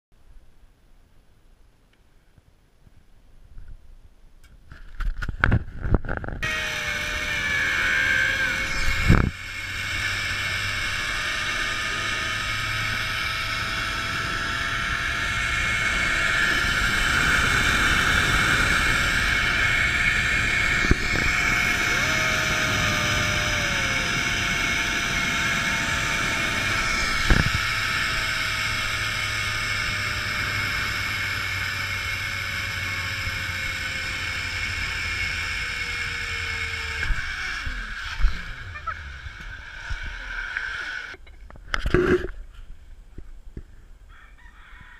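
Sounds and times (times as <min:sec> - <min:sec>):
wind rushing on microphone: 0:05.0 - 0:31.7
zipline pulleys whining on cable: 0:05.3 - 0:42.5.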